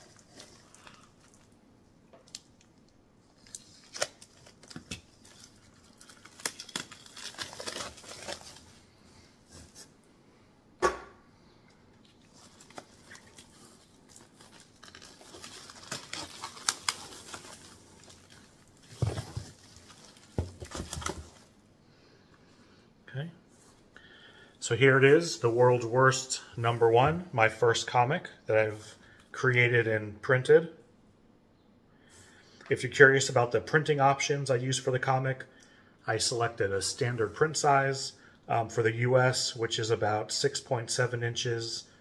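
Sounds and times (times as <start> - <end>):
plastic film crinkling: 3.4 - 8.8, 12.2 - 21.5
knife slitting plastic wrap: 3.5 - 8.6, 12.3 - 18.4.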